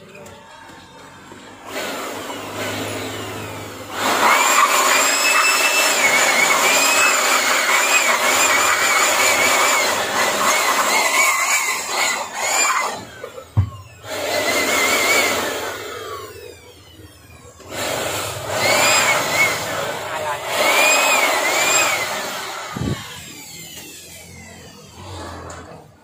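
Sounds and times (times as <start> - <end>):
electric motor whining: 0.0 - 26.0.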